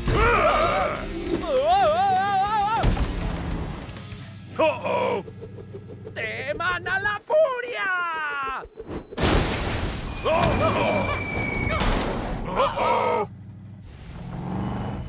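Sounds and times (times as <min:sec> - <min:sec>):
voices crying out: 0:00.0 - 0:02.8, 0:04.5 - 0:05.3, 0:06.2 - 0:08.7, 0:10.2 - 0:13.3.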